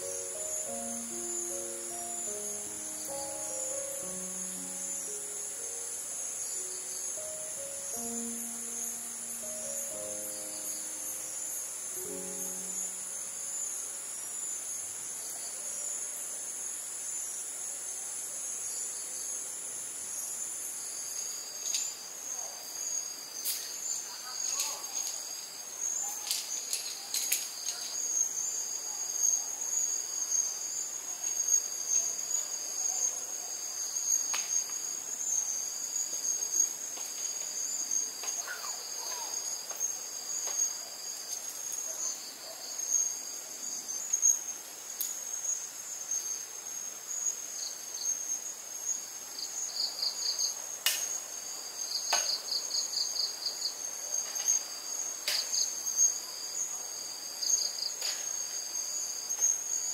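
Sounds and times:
high insect trill: 0.0s - 59.9s
lower pulsed insect trill: 0.0s - 59.9s.

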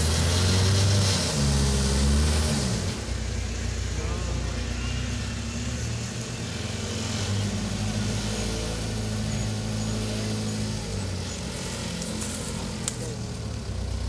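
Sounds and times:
vehicle engine revving: 0.0s - 14.0s.

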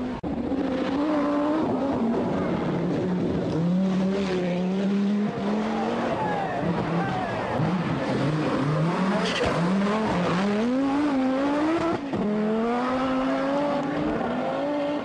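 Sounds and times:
rally car engine accelerating hard: 0.0s - 15.0s.

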